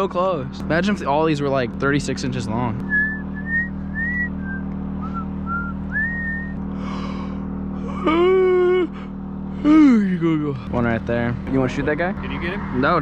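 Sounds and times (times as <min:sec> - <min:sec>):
steady low hum: 0:00.0 - 0:13.0
man whistling: 0:02.9 - 0:06.6
falling sigh: 0:06.8 - 0:08.2.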